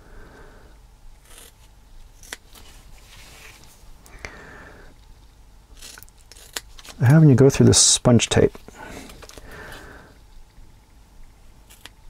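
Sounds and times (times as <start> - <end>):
scissors snipping foam tape: 1.2 - 2.6, 5.8 - 7.0, 11.7 - 12.0.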